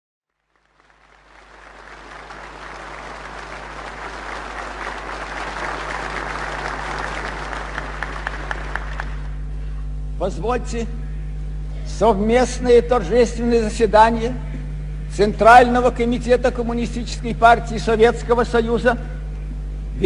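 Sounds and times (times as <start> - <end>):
audience applauding: 0.4 - 9.4
low hum: 0.4 - 20.0.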